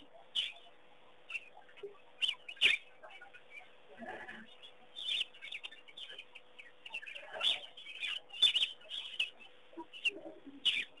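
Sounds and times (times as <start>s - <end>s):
birds chirping: 0.0s - 11.0s.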